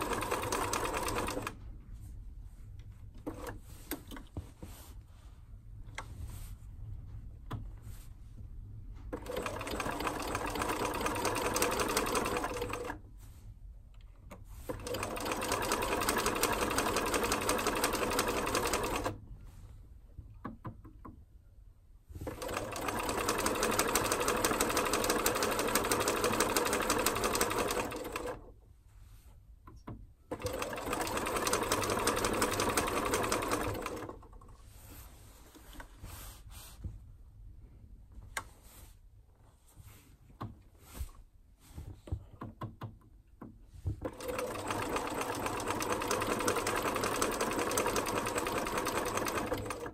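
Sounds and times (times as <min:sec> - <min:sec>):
sewing machine stitching: 0:00.0 - 0:01.6, 0:09.1 - 0:13.0, 0:14.6 - 0:19.2, 0:22.2 - 0:28.5, 0:30.3 - 0:34.4, 0:44.0 - 0:49.9.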